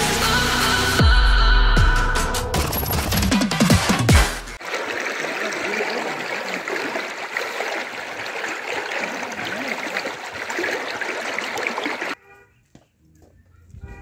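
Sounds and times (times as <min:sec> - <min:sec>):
running water: 0:04.6 - 0:12.2.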